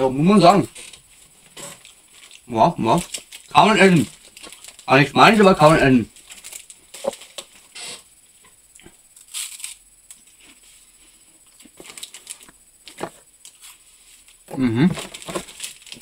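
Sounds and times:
plastic snack packets rustling: 0.6 - 7.7, 11.5 - 16.0.

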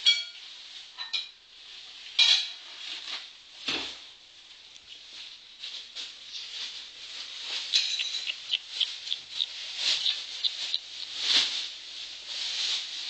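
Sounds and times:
kittens mewing: 7.8 - 11.2.

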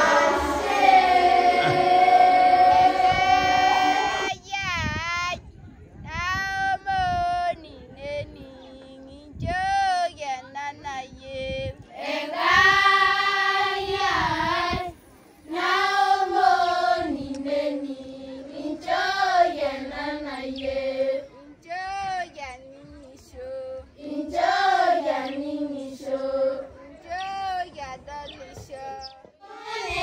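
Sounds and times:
children singing: 0.0 - 4.4, 12.0 - 14.9, 15.5 - 21.3, 24.0 - 26.7, 29.4 - 30.0.

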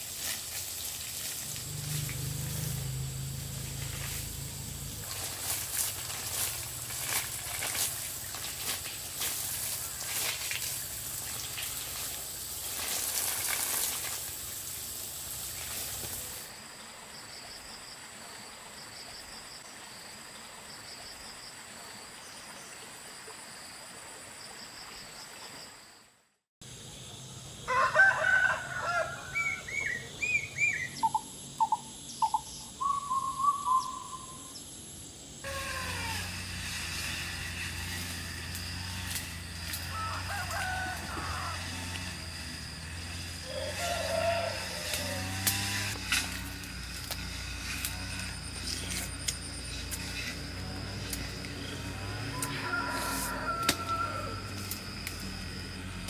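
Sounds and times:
garden hose spraying water: 0.0 - 16.7, 35.4 - 56.0.

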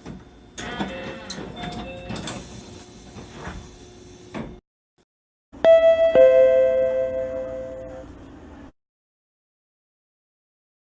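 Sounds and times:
ding-dong chime: 5.6 - 8.1
two-pitch door chime: 5.6 - 8.1.

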